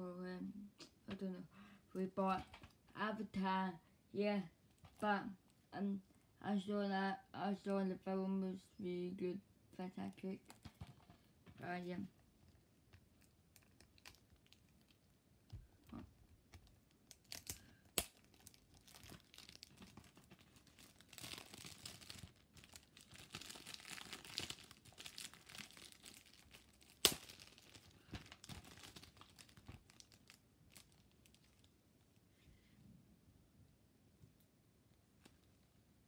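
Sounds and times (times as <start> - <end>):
plastic shrink-wrap tearing and crinkling: 13.1 - 15.1, 15.8 - 31.8.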